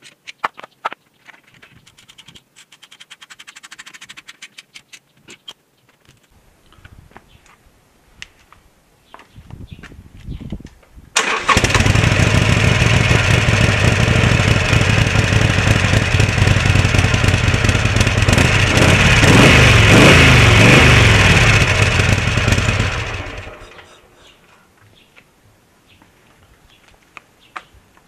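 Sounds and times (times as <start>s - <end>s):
motorcycle engine idling and revving: 11.2s - 24.0s.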